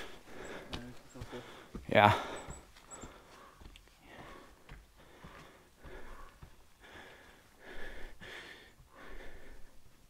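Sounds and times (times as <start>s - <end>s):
person breathing hard: 0.0s - 10.0s.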